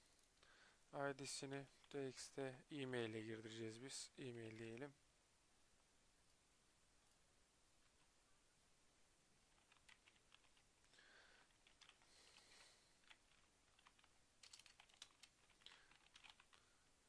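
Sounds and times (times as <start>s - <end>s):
faint keyboard typing: 1.1s - 2.2s, 4.2s - 5.0s, 7.8s - 8.2s, 9.5s - 16.9s.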